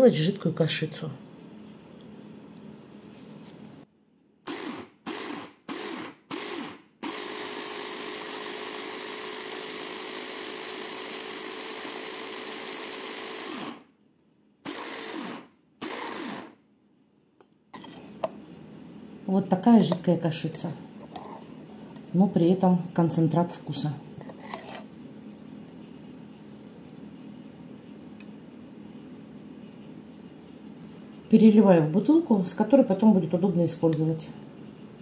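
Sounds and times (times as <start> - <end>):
hand blender motor: 4.5 - 13.9, 14.7 - 16.6.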